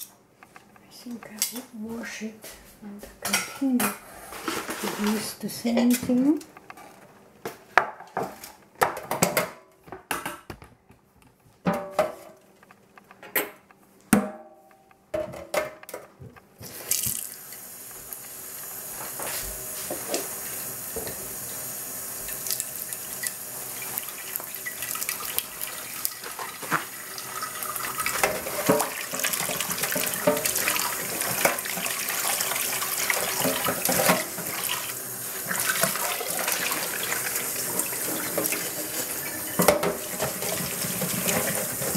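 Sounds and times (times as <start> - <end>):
pan scrubbing and clatter: 3.3 - 5.4, 22.2 - 41.9
tap running water: 16.6 - 41.9.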